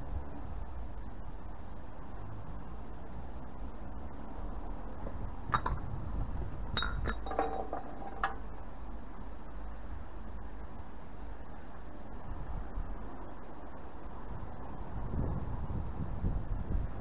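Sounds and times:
metal paint tin clinking: 0:06.8 - 0:08.5.

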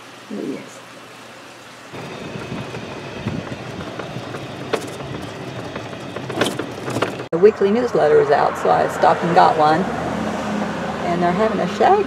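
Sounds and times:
rattles: 0:02.0 - 0:07.3
golf cart running: 0:02.0 - 0:09.8.

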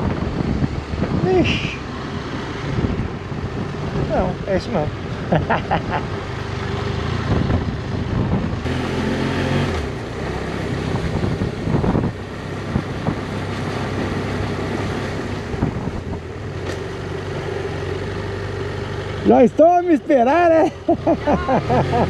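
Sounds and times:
wind noise on microphone: 0:00.0 - 0:05.9, 0:07.0 - 0:08.7, 0:10.7 - 0:16.5
motorcycle engine running: 0:02.7 - 0:22.0.

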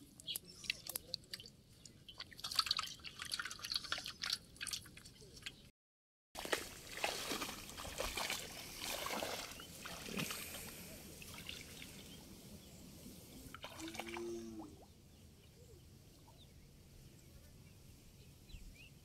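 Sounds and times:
water trickling and sloshing: 0:00.1 - 0:05.7, 0:06.4 - 0:12.3, 0:13.4 - 0:14.9.

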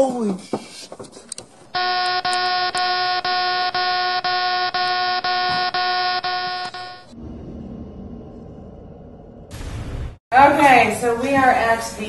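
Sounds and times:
pulsing electronic buzzer tone: 0:01.7 - 0:07.2.

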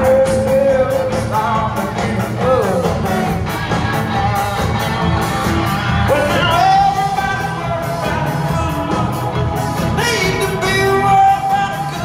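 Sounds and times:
man singing: 0:00.0 - 0:03.6, 0:06.0 - 0:12.0
live rock band: 0:00.0 - 0:12.0.

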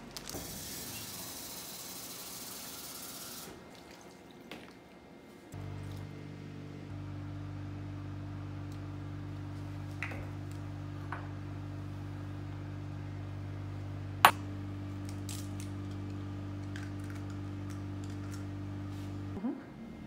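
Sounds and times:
steady low hum: 0:05.5 - 0:19.4.

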